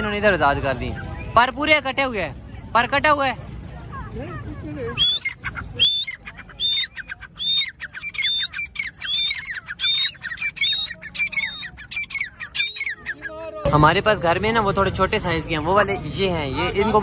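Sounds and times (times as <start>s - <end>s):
partridge calling: 4.9s - 13.6s.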